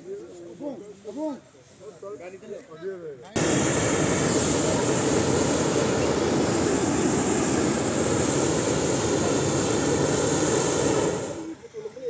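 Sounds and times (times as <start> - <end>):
propane burner roaring: 3.4 - 11.7.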